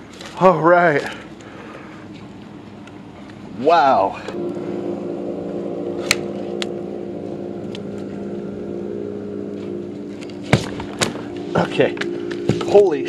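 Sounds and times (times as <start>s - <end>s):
steady motor hum: 4.4s - 13.0s.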